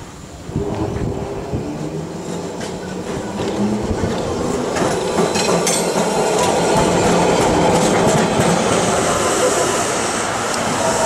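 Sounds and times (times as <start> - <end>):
tram wheels knocking on rails: 2.2 - 9.2.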